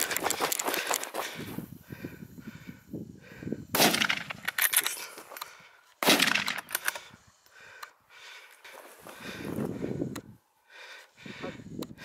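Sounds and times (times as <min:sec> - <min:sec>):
gunshots with echoing tail: 0:03.8 - 0:04.4, 0:06.0 - 0:06.7.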